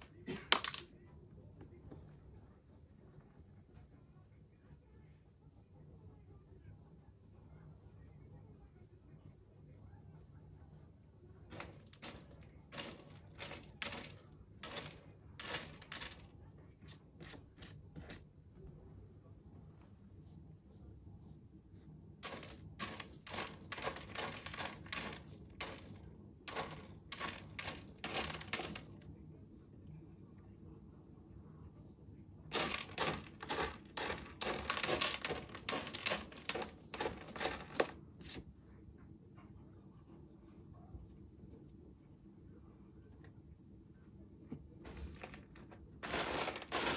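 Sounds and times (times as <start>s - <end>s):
cat scratching litter: 11.4s - 18.4s, 22.2s - 29.1s, 32.5s - 38.5s, 44.8s - 46.9s.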